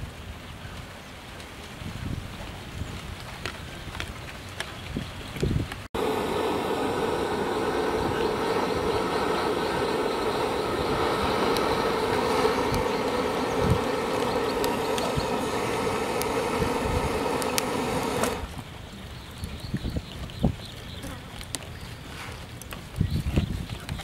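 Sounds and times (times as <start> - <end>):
loud steady drone: 6.0 - 18.5.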